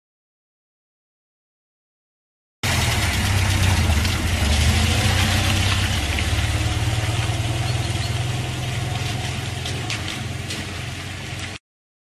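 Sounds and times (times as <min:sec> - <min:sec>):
engine humming: 0:02.6 - 0:11.6.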